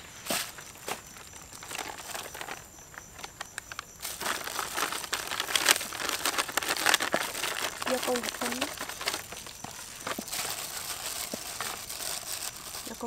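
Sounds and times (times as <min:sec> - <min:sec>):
plastic packet crinkling: 0:00.4 - 0:13.0.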